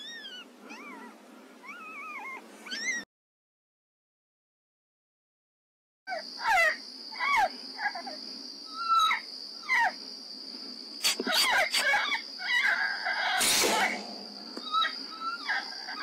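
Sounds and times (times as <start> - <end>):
coyote barks and yelps: 6.1 - 10.0, 11.0 - 13.4, 14.5 - 16.0
crickets trilling: 6.1 - 16.0
sharp cracks: 13.4 - 15.0.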